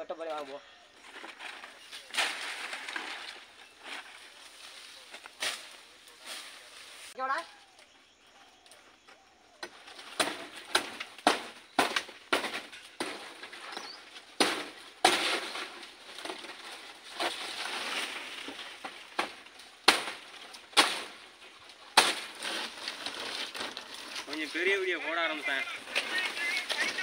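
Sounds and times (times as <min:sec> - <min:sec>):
stiff fronds rustling: 0:00.0 - 0:27.0
blade chopping palm stalk: 0:10.1 - 0:13.7, 0:14.3 - 0:21.3, 0:21.9 - 0:23.8.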